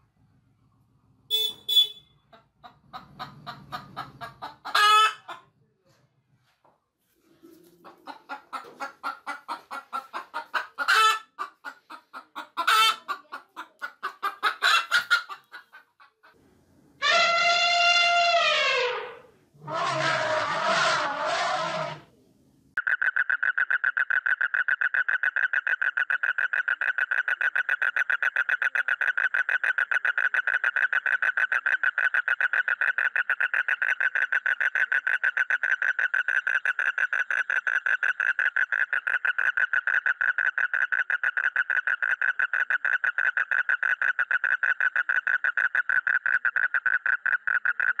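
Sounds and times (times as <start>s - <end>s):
elephant calling: 17.0s - 22.0s
toad trilling: 22.8s - 48.0s.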